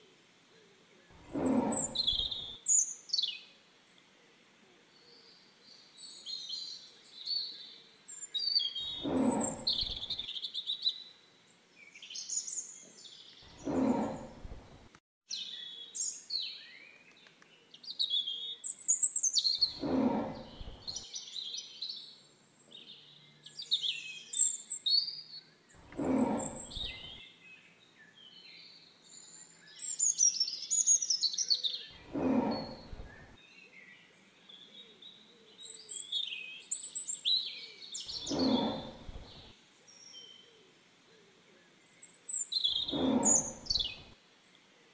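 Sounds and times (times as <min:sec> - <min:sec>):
small birds chirping: 0:01.1 - 0:04.1, 0:04.8 - 0:40.8, 0:41.7 - 0:44.9
tiger roaring: 0:01.2 - 0:02.6, 0:08.9 - 0:10.2, 0:13.5 - 0:15.0, 0:19.6 - 0:21.0, 0:25.8 - 0:27.2, 0:32.0 - 0:33.4, 0:38.1 - 0:39.5, 0:42.7 - 0:44.1.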